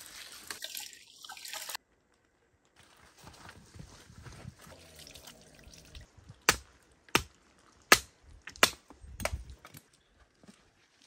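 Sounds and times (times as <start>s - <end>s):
water trickling into stone basin: 0.0s - 1.8s, 4.7s - 6.4s.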